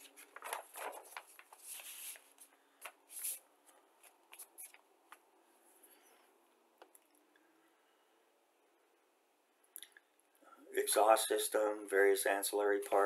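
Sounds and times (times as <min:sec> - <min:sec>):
paper pages rustling: 0:00.0 - 0:05.2.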